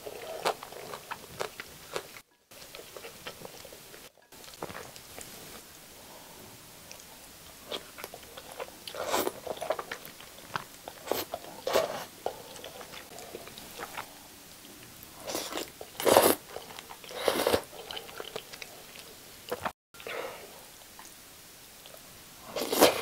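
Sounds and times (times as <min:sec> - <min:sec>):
chewing: 0:00.0 - 0:05.6, 0:06.8 - 0:20.2
slurping noodles: 0:15.2 - 0:18.4, 0:22.5 - 0:23.0.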